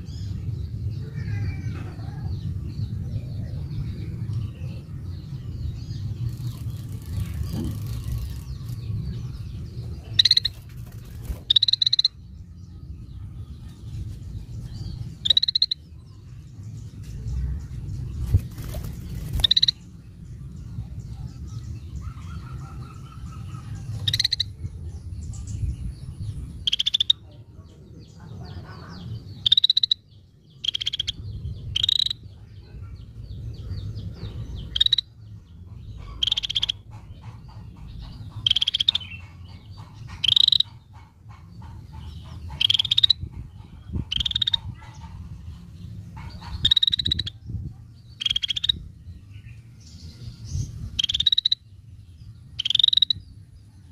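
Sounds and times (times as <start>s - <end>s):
low background rumble: 0.0s - 53.9s
bulbul sharp calls: 9.5s - 12.3s, 15.1s - 16.0s, 18.5s - 19.8s, 22.0s - 24.6s, 26.6s - 27.5s, 28.2s - 33.2s, 34.2s - 49.0s, 50.8s - 51.8s, 52.5s - 53.4s.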